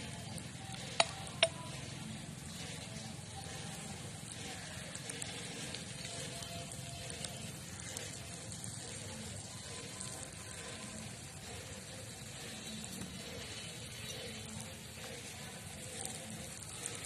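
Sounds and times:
egg sizzling: 0:00.0 - 0:17.0
small crackles: 0:00.0 - 0:17.0.

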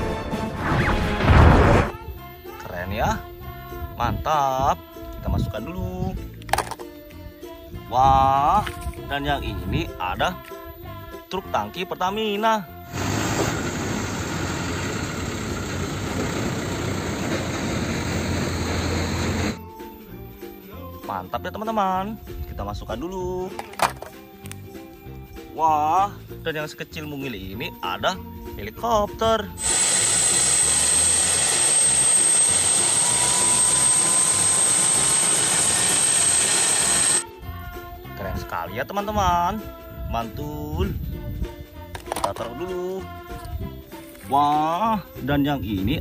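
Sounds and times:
turbine whine: 0:00.4 - 0:02.0, 0:12.9 - 0:19.6, 0:29.6 - 0:37.2
diesel truck engine running: 0:12.9 - 0:19.6
rotor blades beating: 0:13.0 - 0:19.6, 0:29.6 - 0:37.2.

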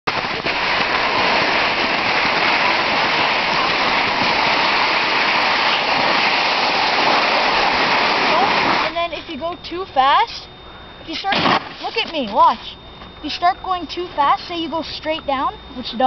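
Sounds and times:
sliding over snow: 0:00.1 - 0:08.9.

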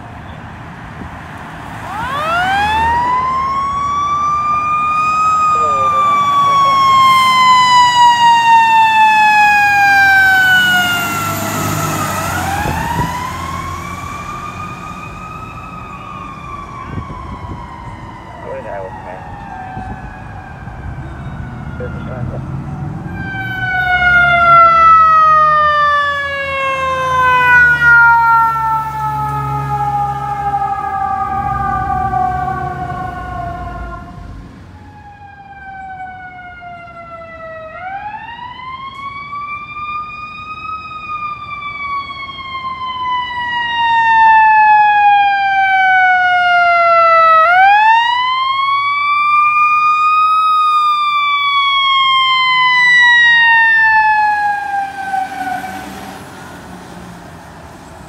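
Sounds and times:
fire truck siren wailing: 0:00.9 - 0:58.0
heavy truck engine rumble: 0:02.9 - 0:34.8.

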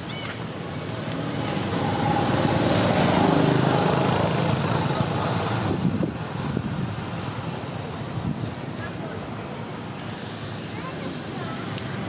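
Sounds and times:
motor vehicle passing: 0:00.2 - 0:08.4.

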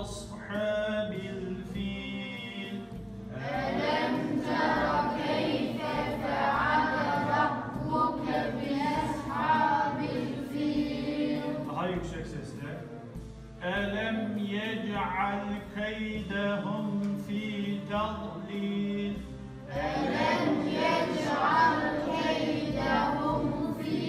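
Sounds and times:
choir singing: 0:03.4 - 0:11.8, 0:19.6 - 0:24.0.

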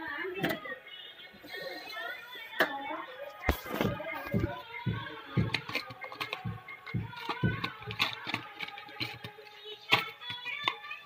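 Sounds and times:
plastic parts box clicks and knocks: 0:03.5 - 0:09.3.

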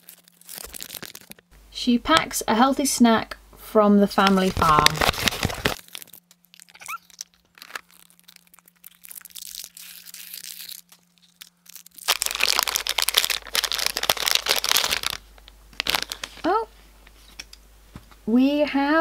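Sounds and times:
foil packet crinkling and tearing: 0:00.0 - 0:01.5, 0:04.2 - 0:16.5.

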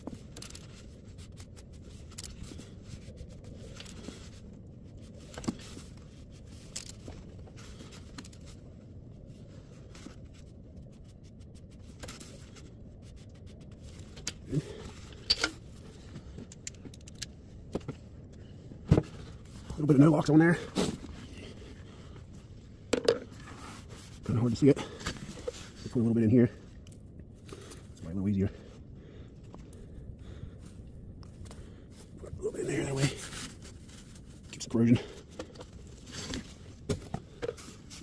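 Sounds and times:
metallic clicks and scrapes: 0:00.0 - 0:08.6, 0:11.0 - 0:17.9
steady low hum: 0:00.0 - 0:38.0.

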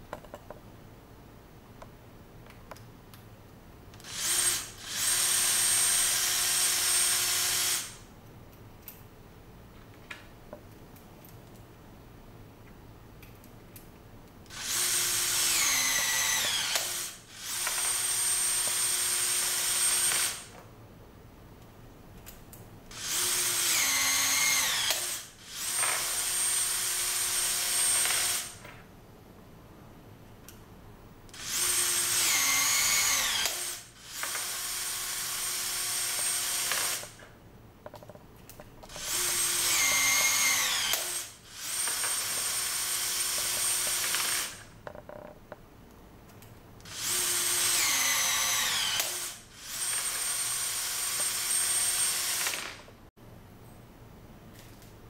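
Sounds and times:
electric rivet tool motor whirring: 0:04.0 - 0:08.0, 0:14.5 - 0:20.5, 0:22.9 - 0:28.6, 0:31.3 - 0:37.2, 0:38.9 - 0:44.7, 0:46.8 - 0:52.9.

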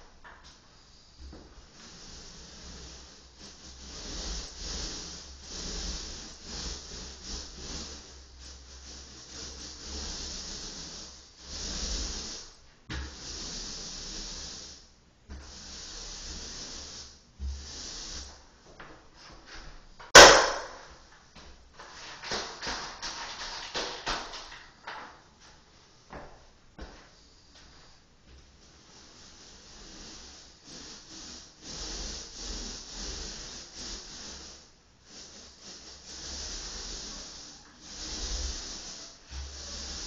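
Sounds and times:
rasping scraping strokes: 0:00.9 - 0:14.7, 0:28.8 - 0:40.0
sharp loud knock: 0:20.2 - 0:20.8.

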